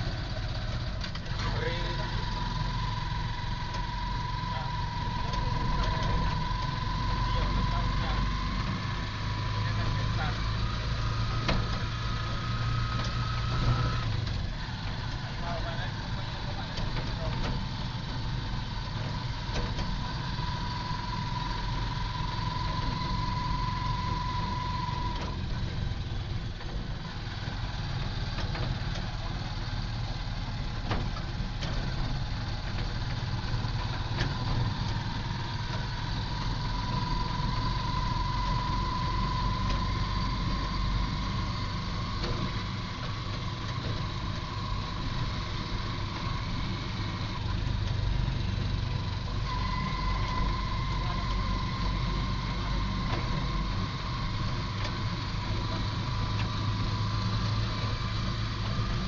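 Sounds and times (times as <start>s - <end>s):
vehicle engine and road rumble: 0.0s - 59.0s
thin high whine: 48.5s - 59.0s.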